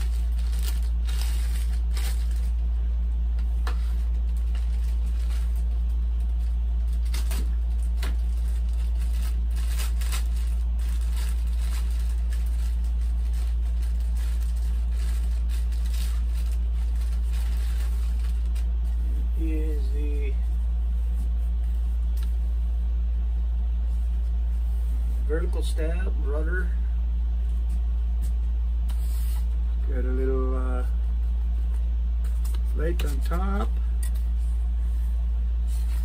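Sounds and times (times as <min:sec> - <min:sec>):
plastic bags crinkling: 0:00.0 - 0:02.7, 0:04.0 - 0:18.9
steady low hum: 0:00.0 - 0:36.0.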